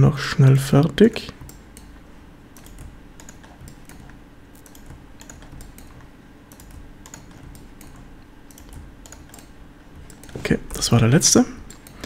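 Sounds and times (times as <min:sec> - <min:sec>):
keyboard and mouse clicking: 0:01.1 - 0:10.4, 0:11.7 - 0:12.0.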